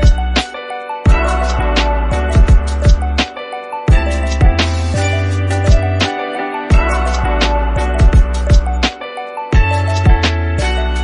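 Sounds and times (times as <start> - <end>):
deep drum thumps: 2.4 - 3.0, 8.0 - 8.8.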